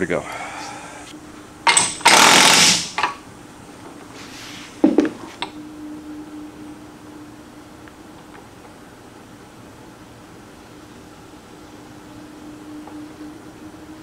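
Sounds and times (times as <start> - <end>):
impact wrench hammering: 1.7 - 3.2.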